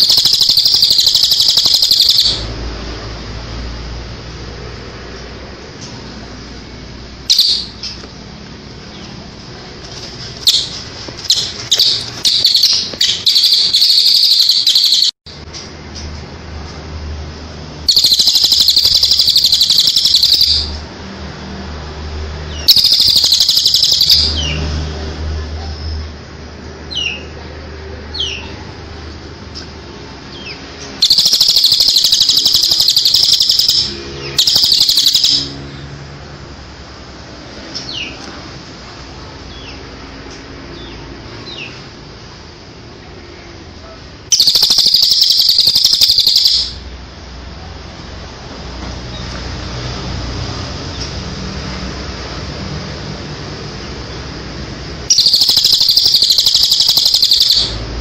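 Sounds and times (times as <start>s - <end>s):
soft bird chirps: 0.0s - 2.4s, 10.5s - 15.1s, 30.4s - 35.6s, 44.3s - 46.8s, 55.1s - 57.8s
bird trilling song: 0.0s - 2.5s, 7.3s - 8.0s, 10.4s - 15.1s, 17.9s - 20.8s, 22.5s - 24.6s, 30.4s - 35.6s, 44.3s - 46.8s, 55.1s - 57.8s.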